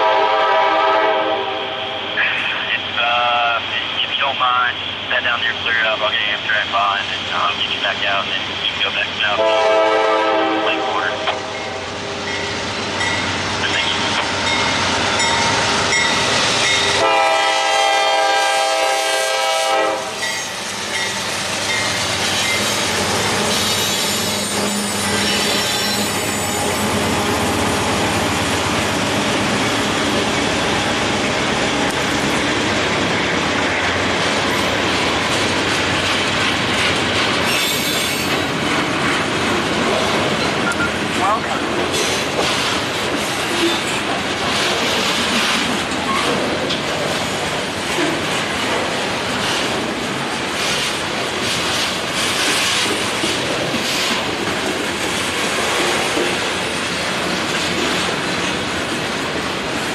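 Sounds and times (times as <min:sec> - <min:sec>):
train air horn blast: 0:00.0 - 0:02.1, 0:09.4 - 0:11.8, 0:17.0 - 0:20.2
freight train wheels clattering: 0:20.0 - 0:59.9.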